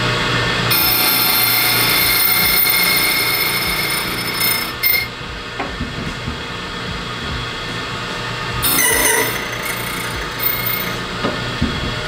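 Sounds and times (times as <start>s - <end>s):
key-cutting machine motor whine: 0.6s - 5.2s, 8.6s - 11.2s.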